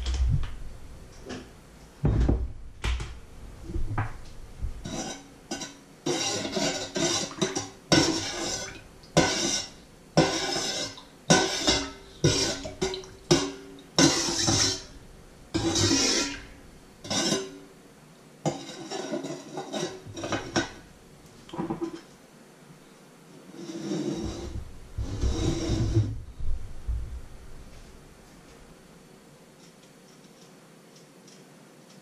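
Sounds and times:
whisk scraping enamel bowl: 0:04.8 - 0:15.0, 0:15.6 - 0:17.6, 0:18.5 - 0:20.8.

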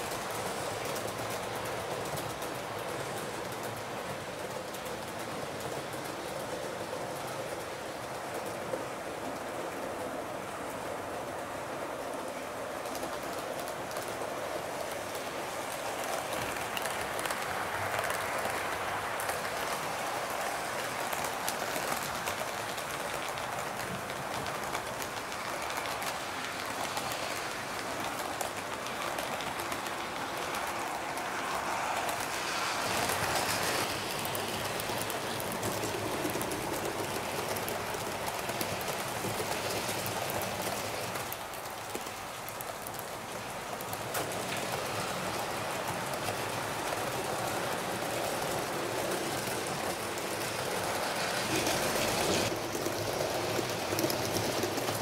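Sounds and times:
model train wheels rattling: 0:12.2 - 0:55.0.

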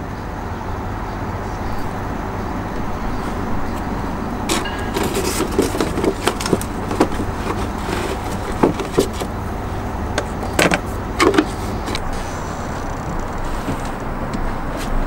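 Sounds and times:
steady low rumble: 0:00.0 - 0:15.0.

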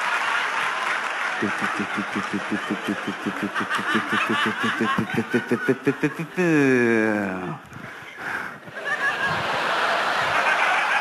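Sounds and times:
audience laughter: 0:00.0 - 0:07.6, 0:08.7 - 0:11.0
man imitating outboard motor: 0:01.4 - 0:07.6.

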